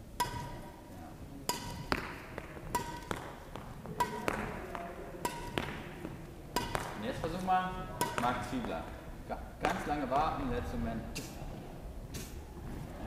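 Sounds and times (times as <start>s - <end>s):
badminton shuttles being struck: 0.0s - 9.0s, 9.6s - 10.2s, 11.1s - 11.4s.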